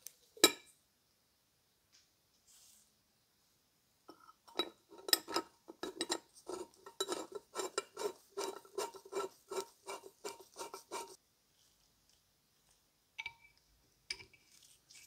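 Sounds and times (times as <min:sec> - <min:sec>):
screw scraping rasp: 0:05.0 - 0:11.2.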